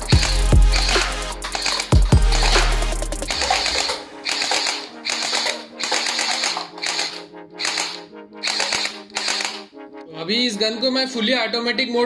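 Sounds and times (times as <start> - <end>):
toy gun firing bursts: 0.0 - 9.7
background music: 0.0 - 12.0.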